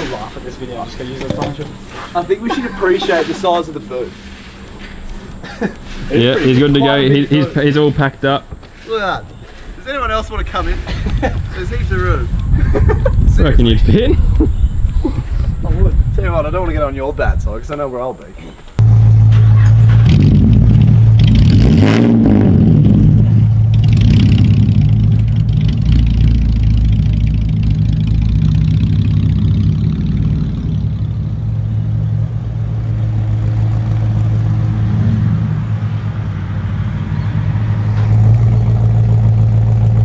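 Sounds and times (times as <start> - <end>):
loud car engine revving and idling: 18.8 - 40.0.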